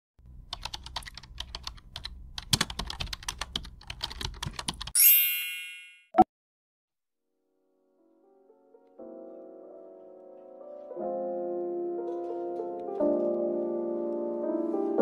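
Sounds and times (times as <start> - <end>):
bright chime: 5.0 - 6.1.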